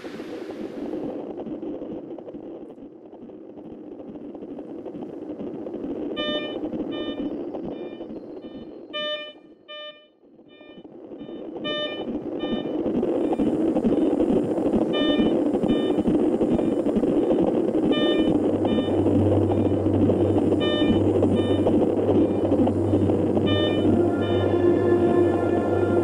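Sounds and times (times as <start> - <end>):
steady rushing noise: 0.0 - 9.0, 10.3 - 26.0
low hum: 0.0 - 26.0
hospital monitor beeping: 6.2 - 26.0.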